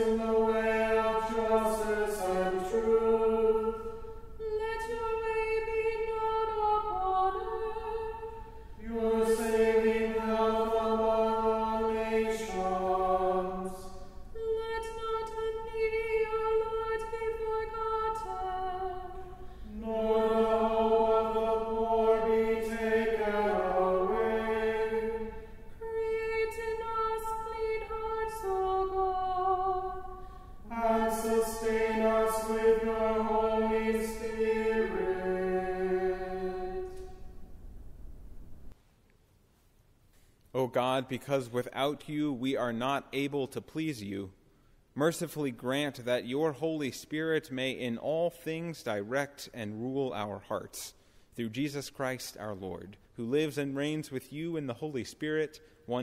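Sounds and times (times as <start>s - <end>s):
person singing a slow chant: 0.0s - 37.2s.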